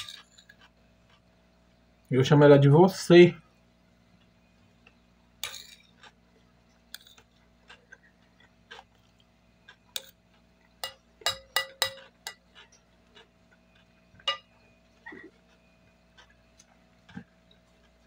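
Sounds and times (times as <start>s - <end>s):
chewing: 5.8s - 10.8s, 11.9s - 18.0s
spoon scraping a ceramic plate: 10.8s - 12.5s.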